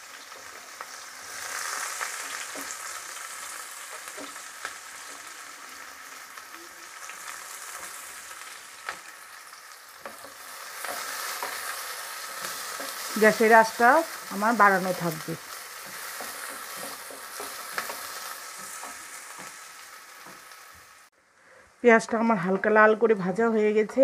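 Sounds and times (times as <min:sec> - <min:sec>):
onions sizzling in hot oil: 0:00.0 - 0:21.2
wooden spatula clicking on pan: 0:15.8 - 0:19.6.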